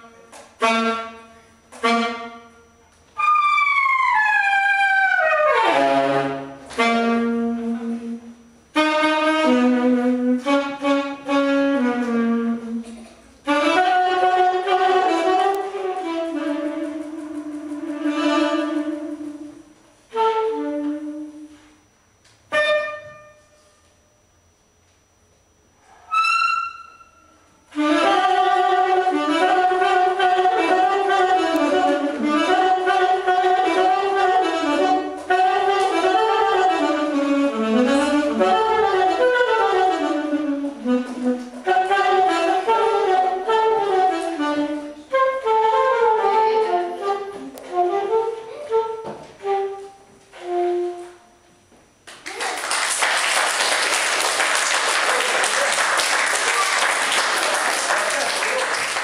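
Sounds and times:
saxophone improvising: 0:00.0 - 0:24.0, 0:25.7 - 0:51.6
children applauding: 0:52.1 - 0:59.0.

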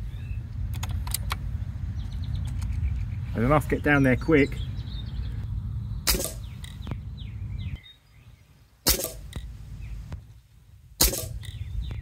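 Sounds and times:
birds chirping faintly: 0:00.0 - 0:12.0
air rifle shots: 0:06.0 - 0:06.8, 0:08.8 - 0:09.5, 0:11.0 - 0:11.6.

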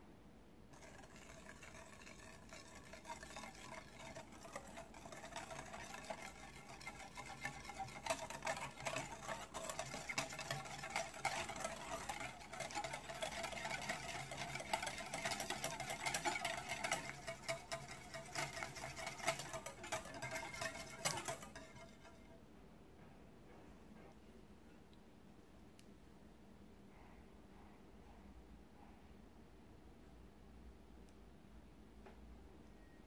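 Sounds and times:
whisk scraping glass bowl: 0:00.8 - 0:22.4.

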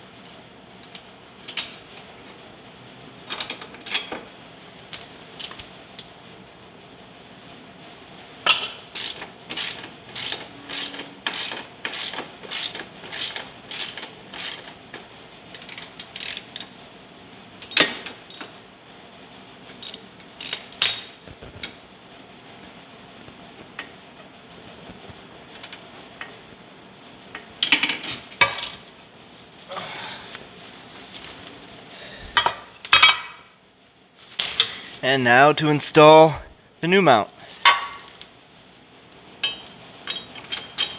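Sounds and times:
ratchet wrench clicking: 0:09.0 - 0:14.7, 0:15.5 - 0:16.7.

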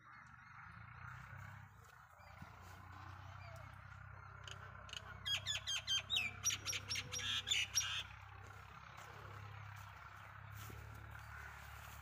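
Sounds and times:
bird chirping: 0:02.1 - 0:08.1.

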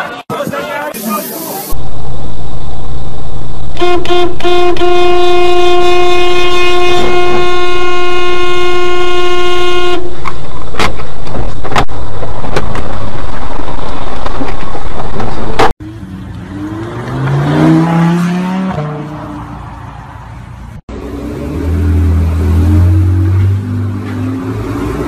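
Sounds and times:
traffic rumble: 0:00.0 - 0:25.0
car horn honking: 0:03.7 - 0:10.3.

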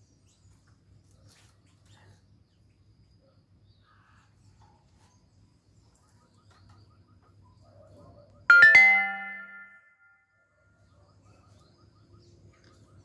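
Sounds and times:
two-note electronic chime: 0:08.5 - 0:10.0.

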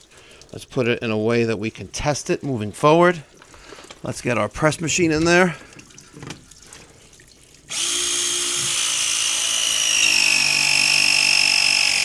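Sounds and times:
press tool motor whine: 0:07.7 - 0:12.0.

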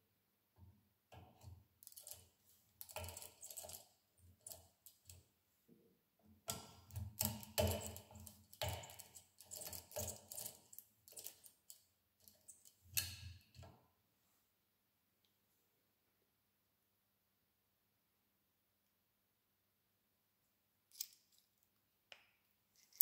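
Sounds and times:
lock pick clicking and rattling: 0:01.8 - 0:02.2, 0:02.8 - 0:03.8, 0:06.5 - 0:13.6.

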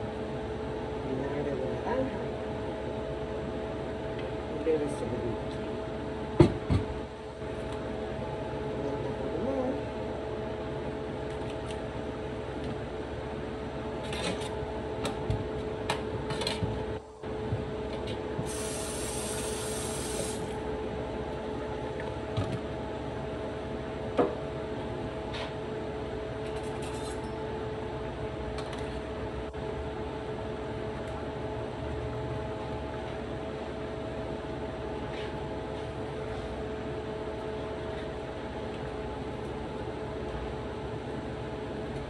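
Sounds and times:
kitchen hum with tones: 0:00.0 - 0:42.0.

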